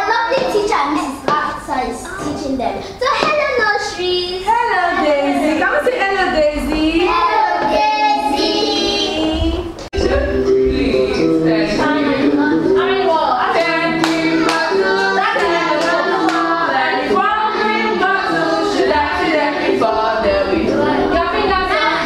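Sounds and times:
children's song singing over music: 0:05.3 - 0:22.0
steady beat of sharp strokes: 0:05.4 - 0:22.0.

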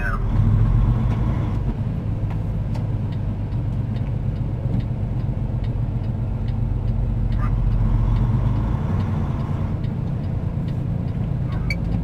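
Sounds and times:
truck engine and road drone: 0:00.0 - 0:12.0
light regular ticking: 0:01.1 - 0:12.0.

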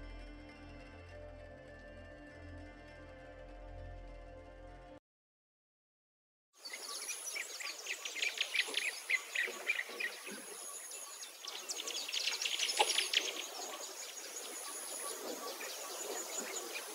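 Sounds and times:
birds chirping: 0:06.6 - 0:16.9.

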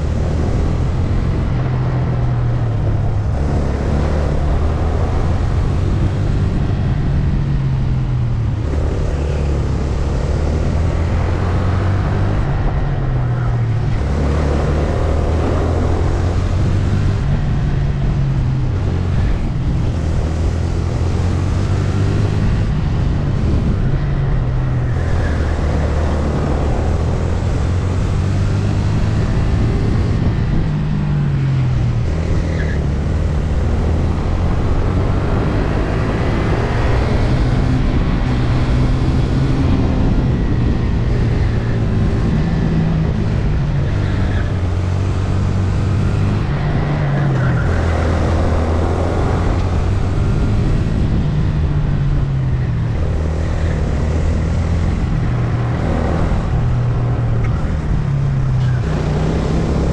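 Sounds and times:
kart engine revving: 0:31.7 - 0:59.9.

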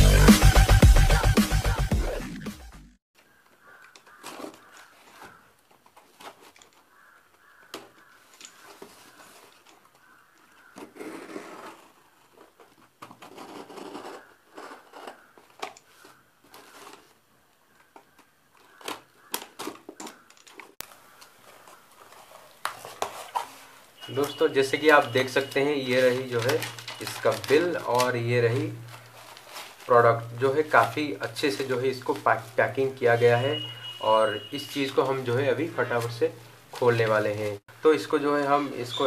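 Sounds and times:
electronic music: 0:00.0 - 0:03.0.

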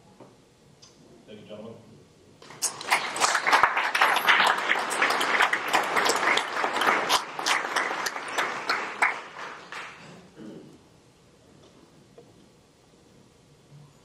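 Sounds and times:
audience applauding: 0:02.4 - 0:10.2.

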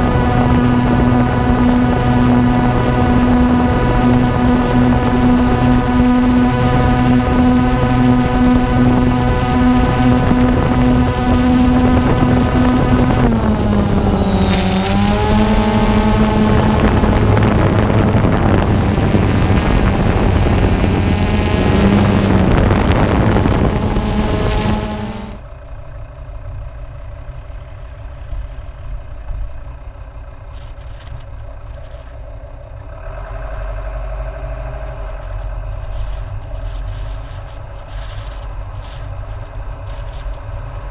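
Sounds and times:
loud wind rush: 0:00.0 - 0:25.4
light aircraft engine droning: 0:00.0 - 0:40.9
vehicle engine and tyre rumble: 0:00.0 - 0:40.9.

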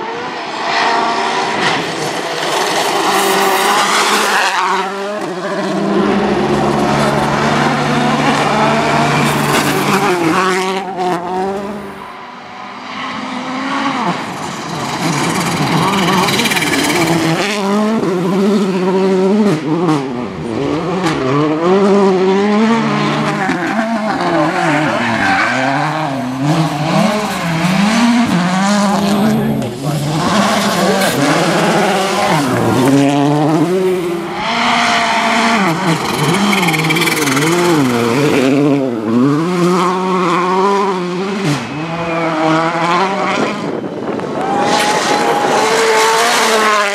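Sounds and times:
rally car engines revving: 0:00.0 - 0:46.9.

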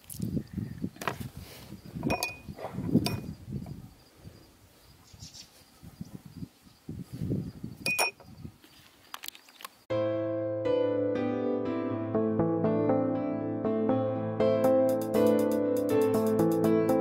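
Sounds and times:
handling knocks and rustles: 0:00.9 - 0:03.8
spoon clinking against glass bowl: 0:02.1 - 0:02.4, 0:07.8 - 0:08.2.

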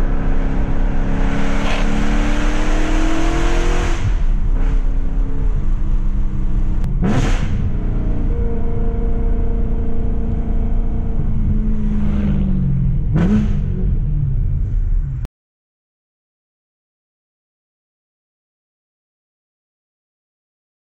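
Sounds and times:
car engine revving loudly: 0:00.0 - 0:14.0.

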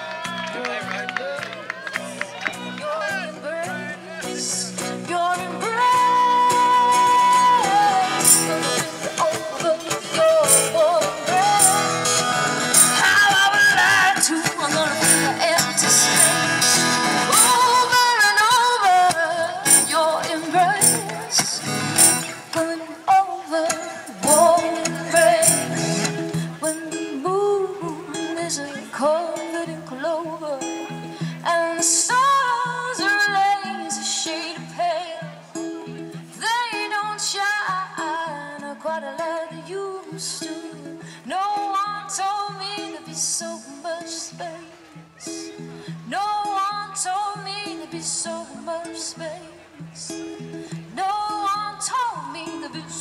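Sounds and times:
picked guitar: 0:00.0 - 0:53.0
person singing long notes: 0:03.3 - 0:35.8
song with percussion: 0:08.0 - 0:13.6, 0:14.4 - 0:17.9, 0:19.6 - 0:22.6, 0:23.7 - 0:26.9.

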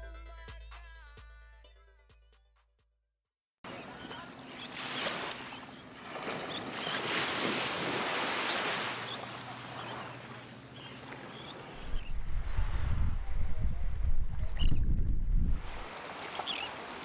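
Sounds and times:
seagulls calling faintly: 0:08.3 - 0:14.8, 0:15.7 - 0:17.0.

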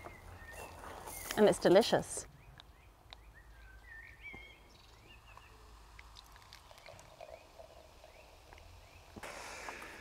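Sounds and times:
faint birdsong chirps: 0:00.0 - 0:09.2
low outdoor hush: 0:02.7 - 0:10.0.

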